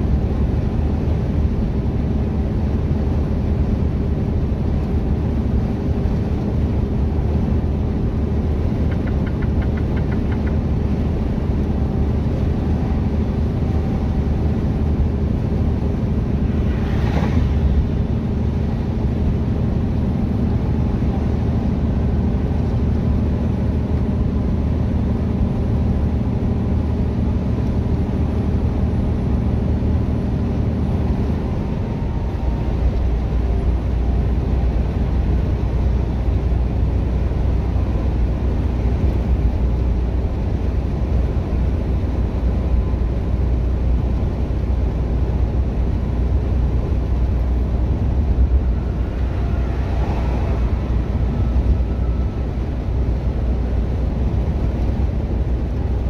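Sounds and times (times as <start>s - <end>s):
road and tyre noise: 0.0s - 56.0s
truck diesel engine drone: 0.0s - 56.0s
whoosh: 16.3s - 18.5s, 48.4s - 52.5s.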